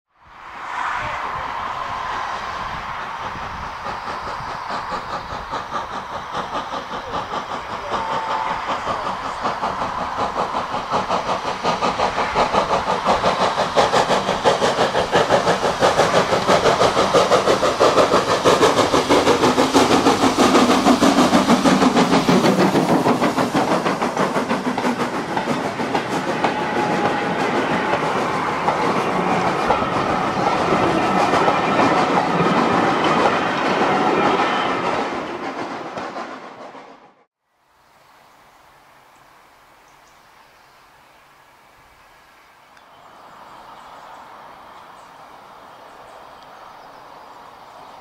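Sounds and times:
steam hissing: 0.5s - 37.1s
steam train chugging: 1.1s - 37.3s.

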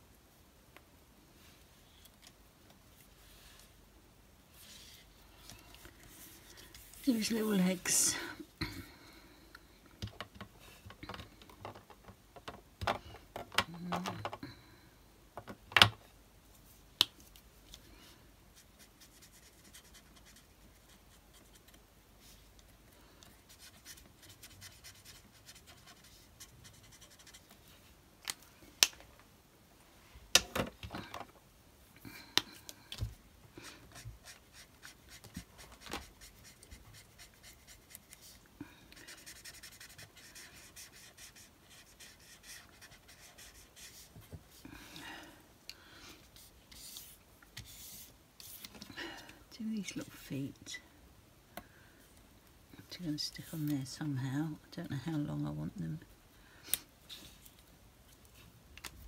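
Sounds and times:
marker scratching on card: 18.6s - 21.7s, 23.5s - 27.4s, 36.0s - 38.4s, 39.0s - 44.1s.

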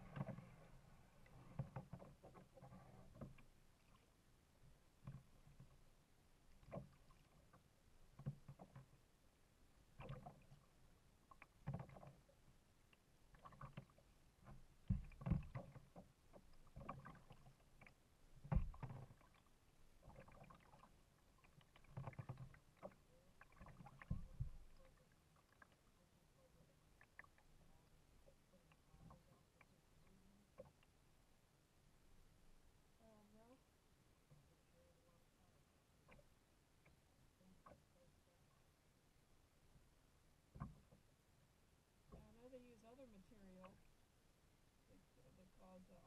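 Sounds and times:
kayak paddle splashing: 6.5s - 9.0s, 9.8s - 12.6s, 13.2s - 31.1s.

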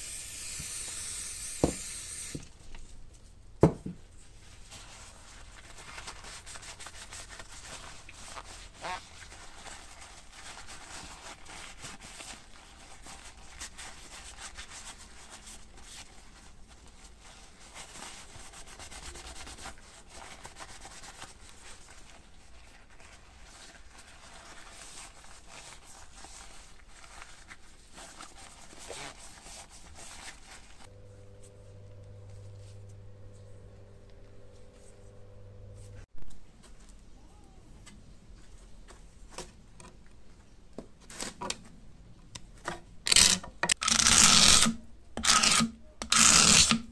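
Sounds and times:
paper towel rubbing and crinkling: 4.2s - 31.4s
steady low hum: 30.8s - 36.1s.

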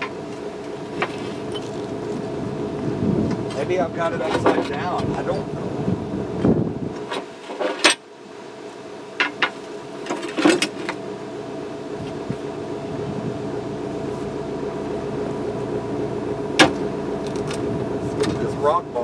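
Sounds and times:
machine hum: 0.0s - 4.2s, 8.0s - 19.0s.

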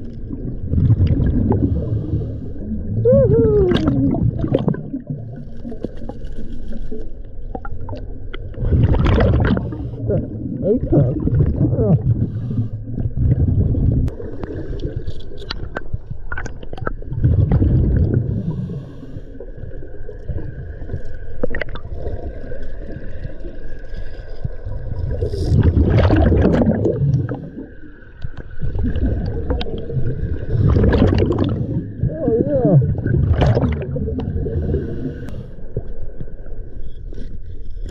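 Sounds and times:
exhaled bubbles gurgling underwater: 0.0s - 37.9s
regulator breathing noise: 34.5s - 35.7s.

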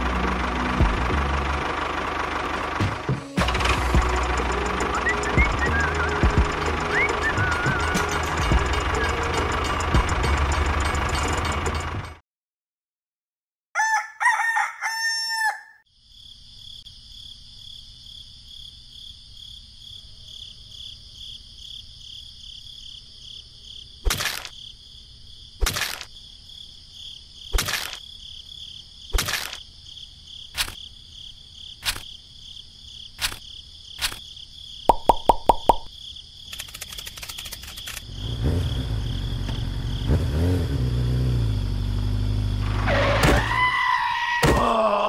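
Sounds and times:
rooster crowing: 13.8s - 15.8s
sharp knocks: 34.9s - 35.9s
pulsing insect drone: 36.5s - 42.9s.

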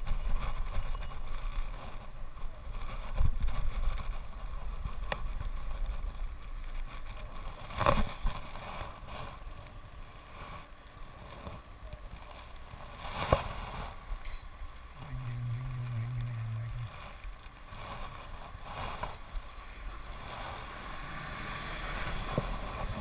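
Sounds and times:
wind rumbling on microphone: 0.0s - 23.0s
bicycle tyre hiss on wet road: 17.0s - 23.0s.

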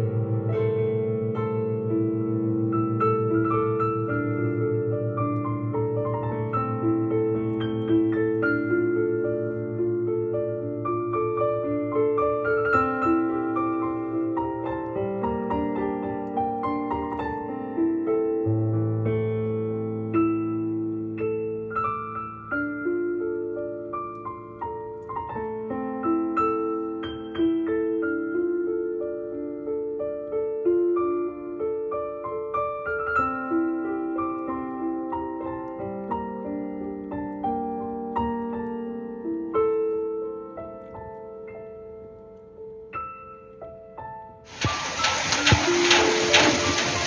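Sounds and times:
slow piano music: 0.0s - 47.0s.

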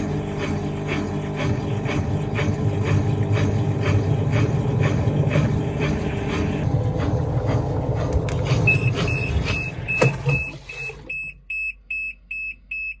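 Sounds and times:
washing machine spinning: 0.0s - 12.9s.

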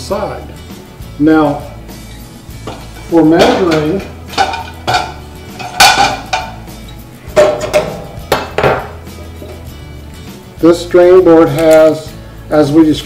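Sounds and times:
metal utensils clanking on steel: 2.6s - 9.7s.

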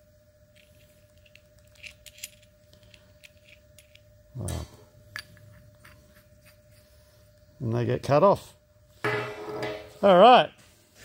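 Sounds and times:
faint steady hum: 0.0s - 11.0s
steel parts clinking: 0.6s - 4.0s.

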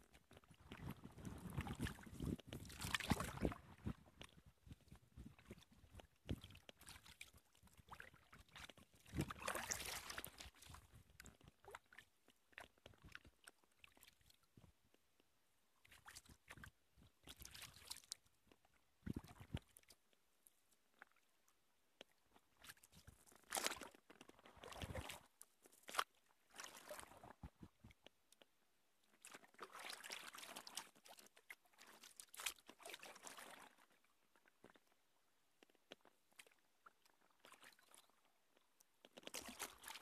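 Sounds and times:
paddle splashing in water: 0.5s - 4.0s, 6.3s - 10.8s, 22.6s - 27.6s, 32.0s - 33.8s.

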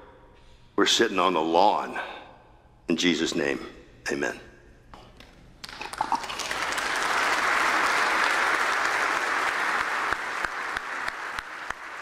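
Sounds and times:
congregation applauding: 5.6s - 12.0s.

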